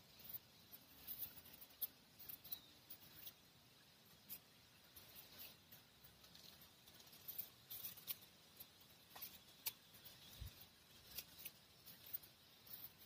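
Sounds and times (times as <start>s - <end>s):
faint ticks: 4.1s - 13.0s.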